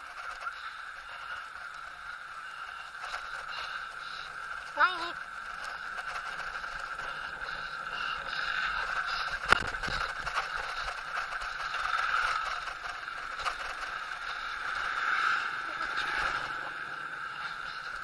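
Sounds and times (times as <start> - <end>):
bicycle rolling over concrete: 0.0 - 18.0.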